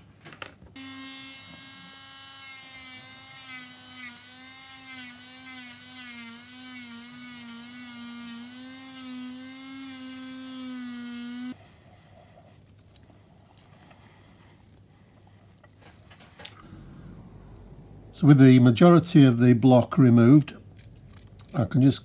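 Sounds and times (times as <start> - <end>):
rotary tool whining: 0.8 - 11.6.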